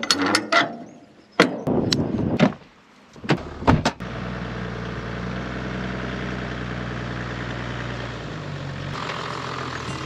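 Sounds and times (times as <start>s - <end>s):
diesel engine running: 3.4s - 10.0s.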